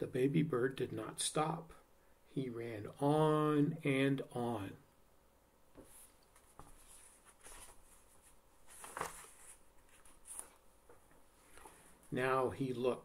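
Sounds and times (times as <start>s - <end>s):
book page turning: 5.8s - 11.0s.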